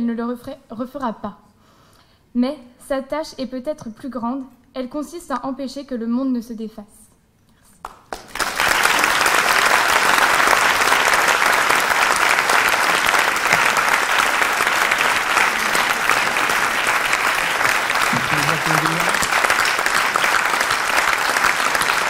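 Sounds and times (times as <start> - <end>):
audience applauding: 7.8 - 22.0.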